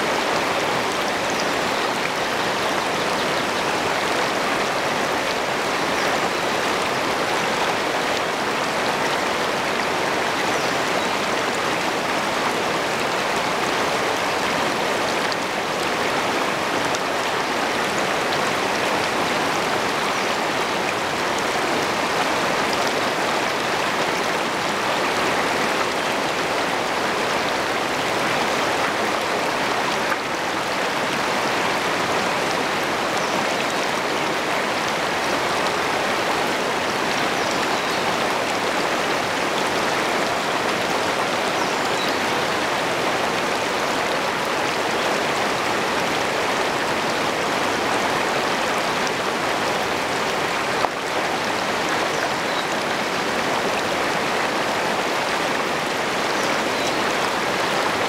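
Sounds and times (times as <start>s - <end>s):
water rushing over rocks: 0.0s - 58.0s.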